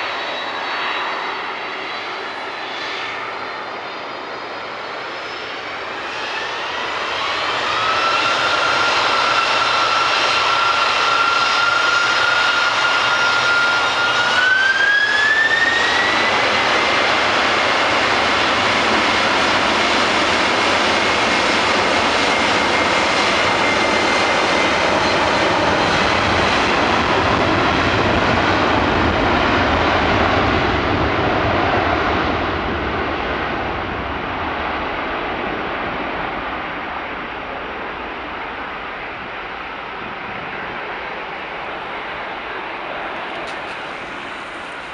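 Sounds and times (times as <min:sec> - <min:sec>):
jet engines spooling up: 0:00.0 - 0:44.9
rising engine whine: 0:00.0 - 0:44.9.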